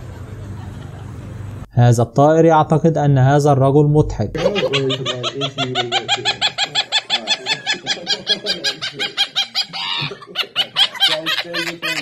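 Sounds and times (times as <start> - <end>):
parrot laughing: 4.4 - 12.0.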